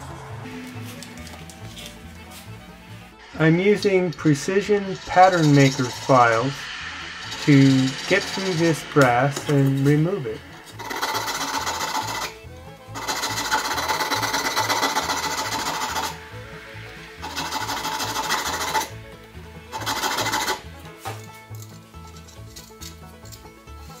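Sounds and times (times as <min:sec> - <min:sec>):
background music with beat: 0:00.0 - 0:24.0
file rasping on brass: 0:10.7 - 0:12.4, 0:13.0 - 0:16.2, 0:17.2 - 0:18.9, 0:19.7 - 0:20.6.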